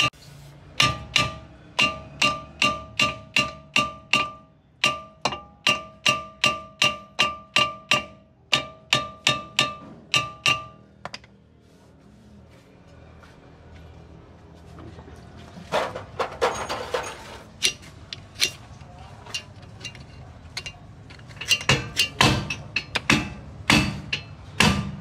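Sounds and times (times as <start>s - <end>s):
hammer striking ringing metal disc: 0.7s - 11.2s, 21.4s - 25.0s.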